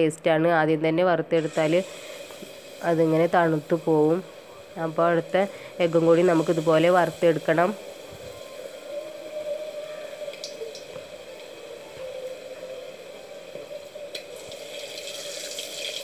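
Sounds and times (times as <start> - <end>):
eggs sizzling in hot oil: 1.3 - 16.0
oil popping: 10.1 - 12.1, 13.5 - 16.0.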